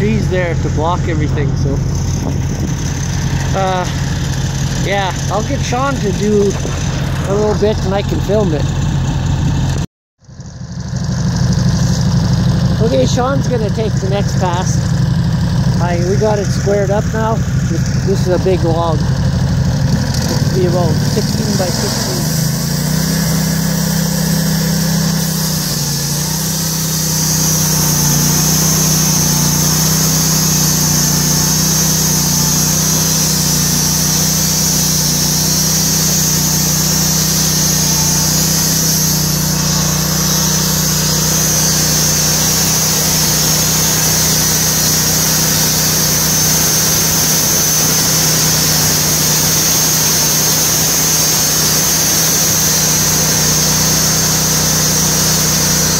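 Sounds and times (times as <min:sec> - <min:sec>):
gas engine running: 0:00.0 - 0:55.9
band blade sawing through log: 0:19.7 - 0:55.9.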